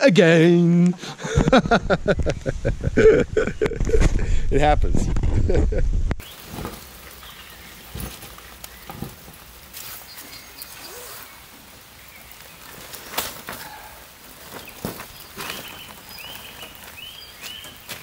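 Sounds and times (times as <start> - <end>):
light rain hissing: 6.2 - 18.0
wet tent rustling and knocking: 6.2 - 18.0
faint bird chirps: 9.8 - 12.7.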